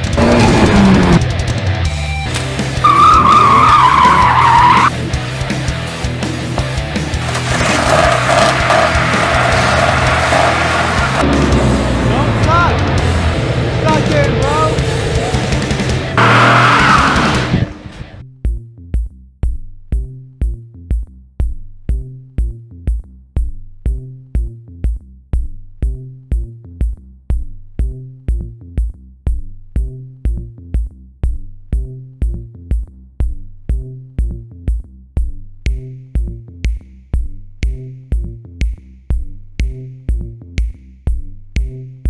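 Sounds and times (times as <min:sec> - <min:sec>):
drum-machine beat: 0:18.5 - 0:42.0.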